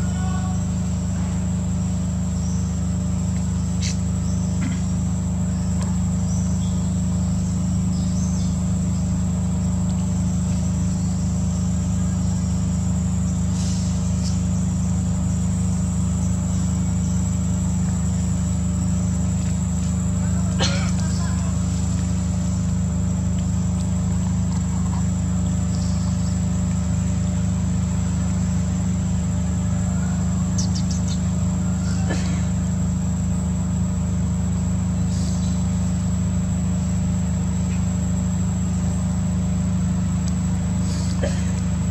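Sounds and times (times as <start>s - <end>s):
high-pitched insect drone: 0.0s - 41.9s
low hum: 0.0s - 41.9s.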